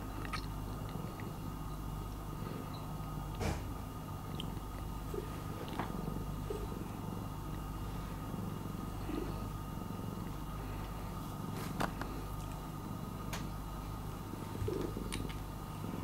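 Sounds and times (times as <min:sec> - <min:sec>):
cat purring: 0:04.3 - 0:16.0.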